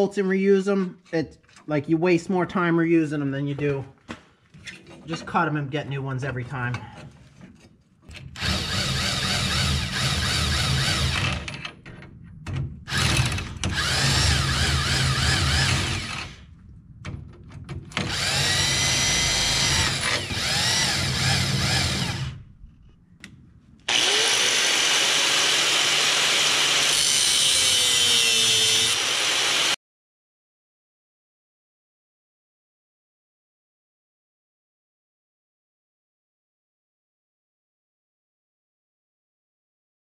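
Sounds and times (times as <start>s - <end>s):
angle grinder on steel: 12.9s - 16.4s, 18.0s - 22.4s, 23.9s - 29.8s
impact wrench running nuts: 12.9s - 16.4s, 18.0s - 22.4s, 23.9s - 29.8s.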